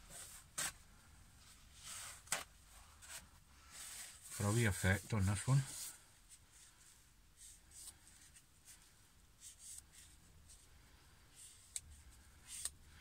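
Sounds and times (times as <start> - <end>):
paper towel rustling: 1.7 - 6.0.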